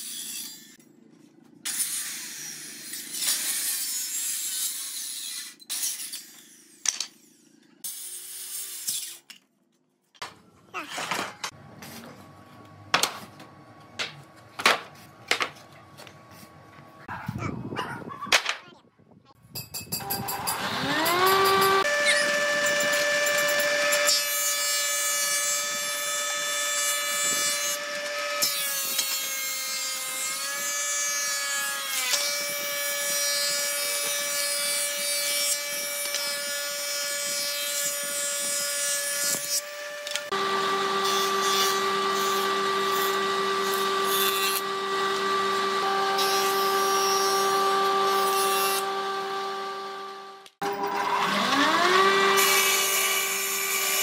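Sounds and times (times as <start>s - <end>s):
machine motor spinning up: 20.0s - 23.1s
thickness planer motor whine: 20.0s - 24.1s, 39.7s - 54.0s.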